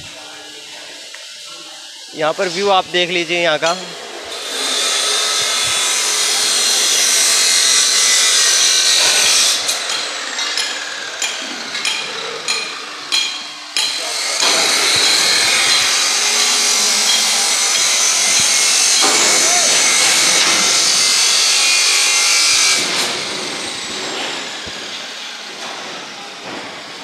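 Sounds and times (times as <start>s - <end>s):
power tool hissing on steel: 0.1s - 27.0s
hammer blows on metal: 8.2s - 24.4s.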